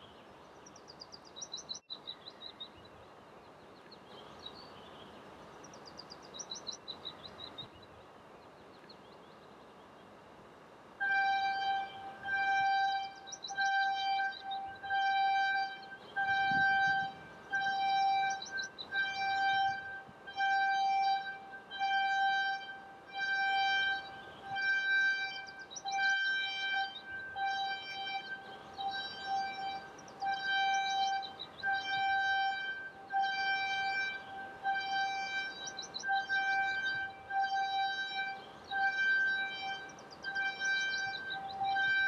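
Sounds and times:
warning horn short high tones: 11.0 - 42.0.

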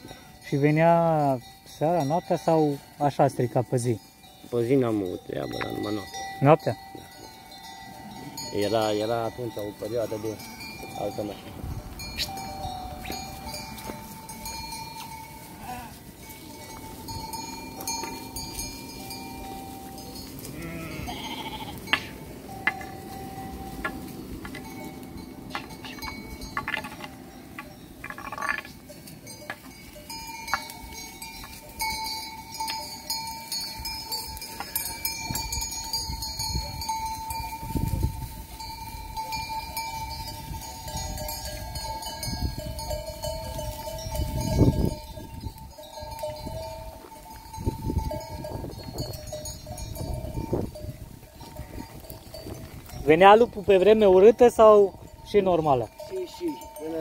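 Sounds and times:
sheep bells ringing: 0.0 - 57.0
sheep bleating: 15.4 - 16.1, 20.4 - 22.2.

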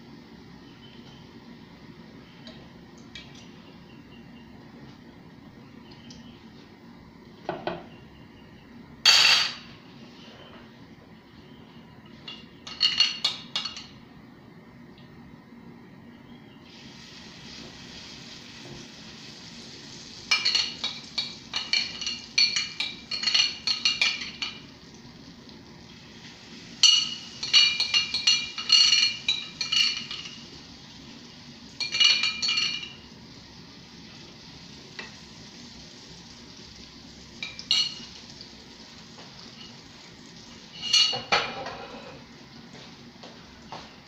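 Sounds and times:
oil sizzling in a pan: 16.7 - 43.7.

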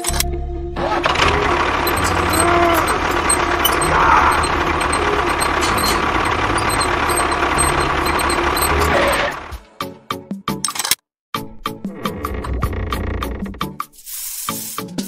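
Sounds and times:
tractor engine idling: 0.8 - 9.6.

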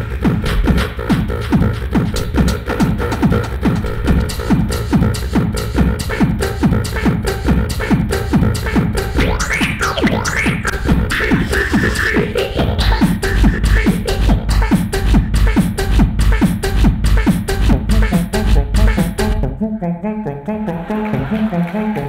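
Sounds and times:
beatboxed kick beat: 0.0 - 22.0
vocal pitch glides: 0.0 - 22.0.

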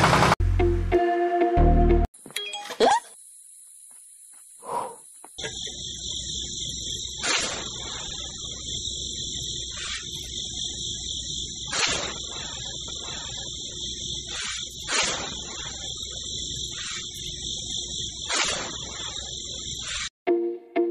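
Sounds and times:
insects chirring: 2.2 - 20.1
toy shovel scraping soil: 9.7 - 10.3, 14.2 - 15.8.

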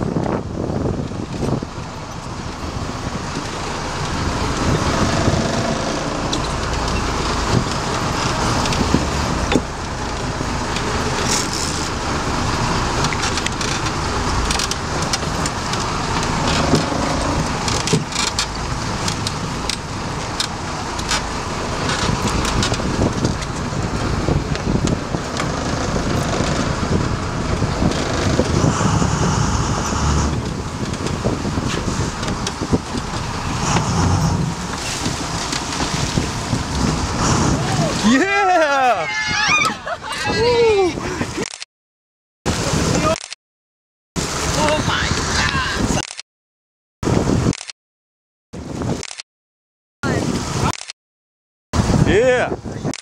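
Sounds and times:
wind across microphone: 0.0 - 11.2, 20.8 - 38.1, 47.0 - 47.6, 48.6 - 49.1, 50.0 - 50.7, 51.8 - 53.0
water rushing past hull: 0.0 - 41.3, 42.5 - 43.2, 44.2 - 46.0
boat engine rumble: 0.0 - 41.5, 42.5 - 43.2, 44.2 - 46.0, 50.0 - 50.7, 51.8 - 53.0
sharp clicks and knocks: 13.0 - 19.8.

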